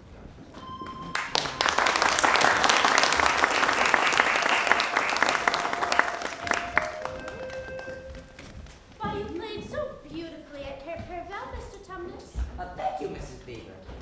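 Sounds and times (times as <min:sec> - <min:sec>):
audience applauding: 0:01.0 - 0:08.8.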